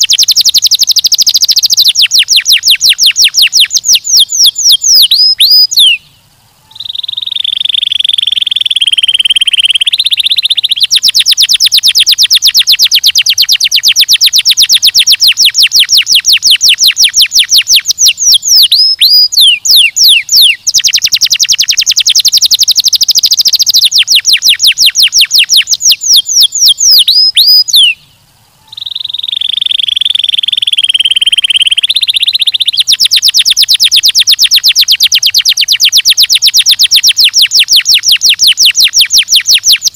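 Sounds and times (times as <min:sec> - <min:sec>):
canary singing: 0:00.0 - 0:39.9.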